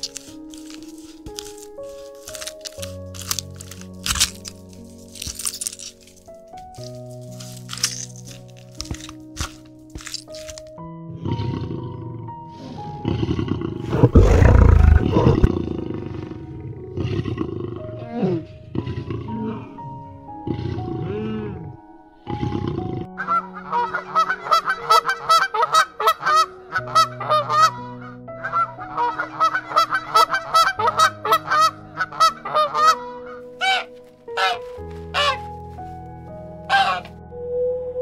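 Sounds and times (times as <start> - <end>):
soft background music: 0.0 - 38.0
lion roaring: 13.0 - 19.8
geese honking: 23.2 - 35.5, 36.7 - 37.1.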